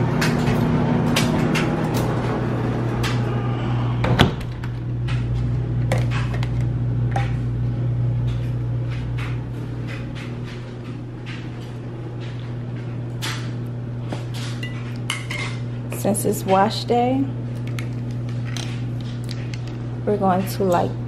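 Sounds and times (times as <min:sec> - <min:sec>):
washing machine humming: 0:00.0 - 0:21.0
door shutting with a thump: 0:04.0 - 0:04.6.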